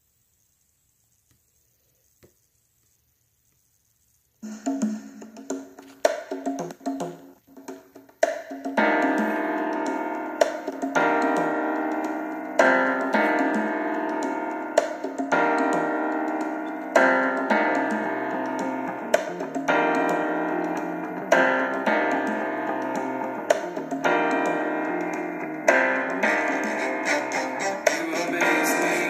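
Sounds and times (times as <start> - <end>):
piano playing slow chords: 8.8 - 29.0.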